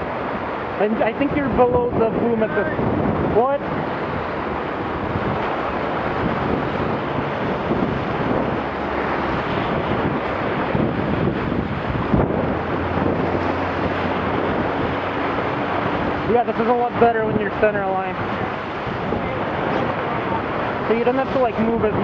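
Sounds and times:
water splashing along hull: 0.0s - 22.0s
wind buffeting microphone: 0.0s - 22.0s.

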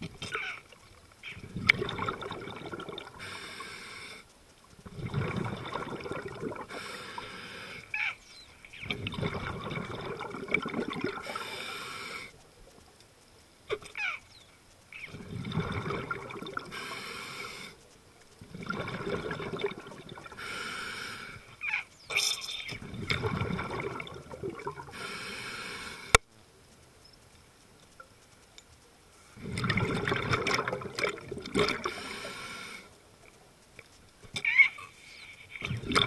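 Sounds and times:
diver breathing through regulator: 3.2s - 4.2s, 6.7s - 7.9s, 11.2s - 12.4s, 16.7s - 17.8s, 20.3s - 21.5s, 24.9s - 26.2s, 31.7s - 32.9s.

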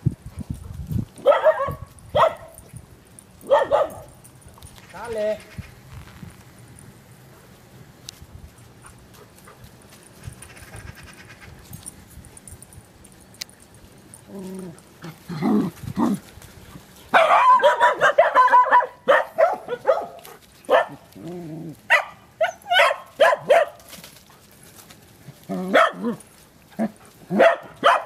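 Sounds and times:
dogs barking: 1.2s - 2.6s, 3.4s - 4.2s, 17.1s - 21.2s, 21.9s - 23.9s, 25.5s - 26.2s, 26.8s - 28.0s.

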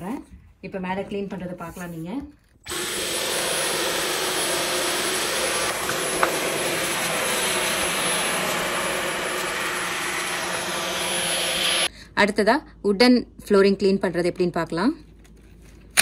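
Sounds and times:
vacuum cleaner whine: 2.7s - 11.9s.

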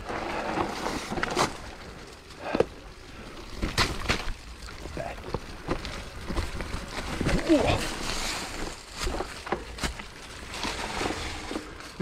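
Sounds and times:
bike tyres rolling over rock: 0.0s - 12.0s
bike knocks and rattles: 3.5s - 12.0s.

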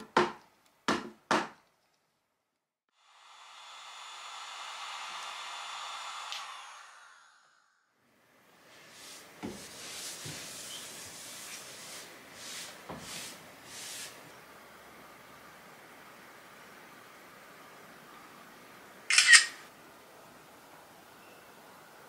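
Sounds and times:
hot-air blower whirring: 2.9s - 8.0s.

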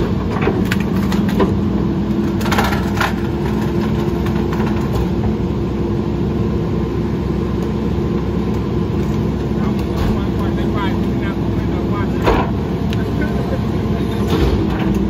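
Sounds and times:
garbage truck engine running: 0.0s - 15.0s.

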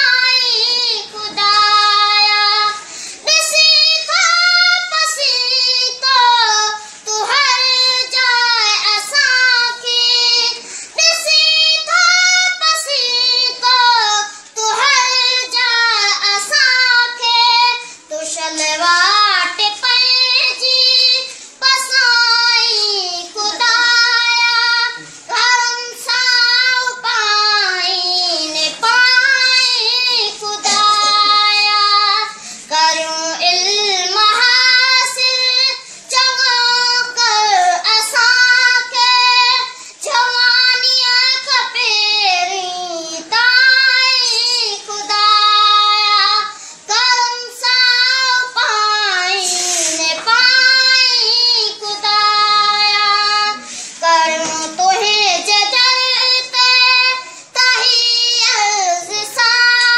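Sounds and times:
boy singing: 0.0s - 59.9s.

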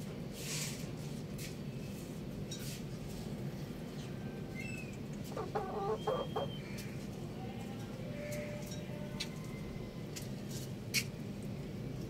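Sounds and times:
rooster clucking: 5.2s - 6.8s.

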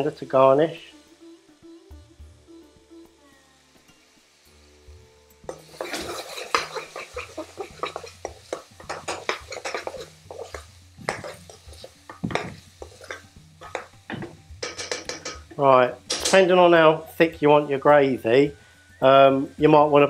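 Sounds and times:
metal spoon scraping frying pan: 5.5s - 16.5s.

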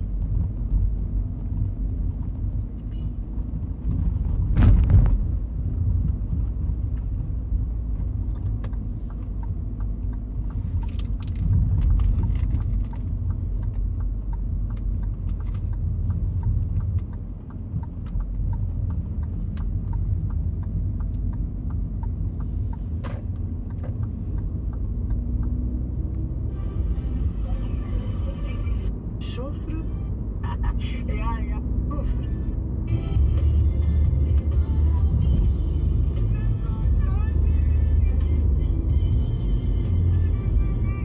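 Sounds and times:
car engine and tyres rumbling: 0.0s - 41.0s
small clicks and light rattles: 8.0s - 25.6s.

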